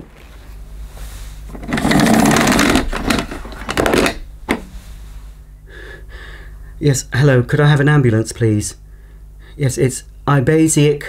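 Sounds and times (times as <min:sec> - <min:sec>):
rotary dial whirring and clicking: 0:01.5 - 0:04.6.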